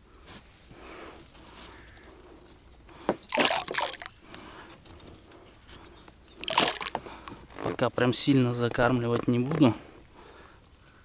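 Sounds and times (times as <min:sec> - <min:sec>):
water splashing and sloshing: 0:03.3 - 0:04.2, 0:06.4 - 0:07.1.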